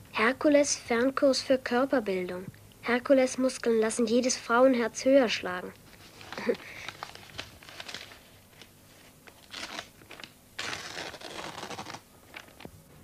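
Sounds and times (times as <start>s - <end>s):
paper rustling and tearing: 5.9s - 12.7s.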